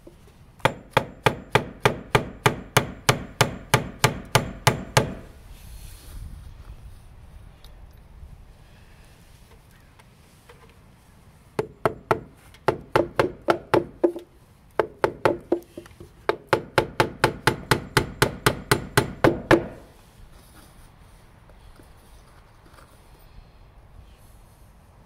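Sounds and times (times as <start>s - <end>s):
hammer striking fasteners into wood: 0.6s - 5.3s, 11.6s - 19.9s.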